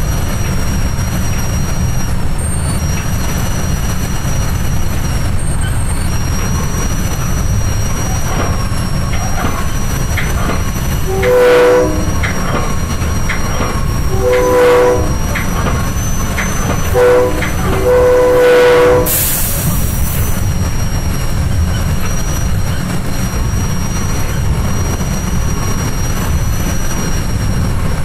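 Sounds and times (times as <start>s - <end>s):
train rumble on track: 0.0s - 28.0s
wheel clicks over rails: 5.6s - 17.9s
train chime horn blasts: 11.0s - 12.5s, 14.0s - 19.5s.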